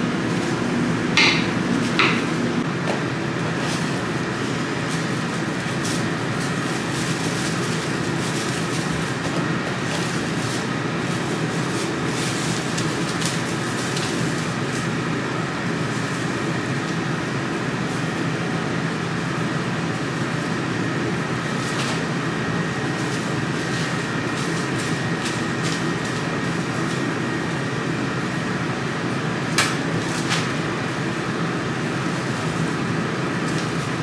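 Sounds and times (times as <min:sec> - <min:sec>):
machinery droning: 0:00.0 - 0:14.0.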